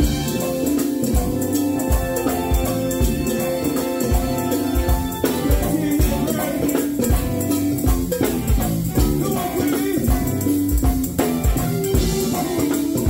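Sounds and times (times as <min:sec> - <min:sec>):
horns playing: 0:00.0 - 0:07.7
drum beat: 0:00.0 - 0:13.0
tambourine: 0:00.0 - 0:13.0.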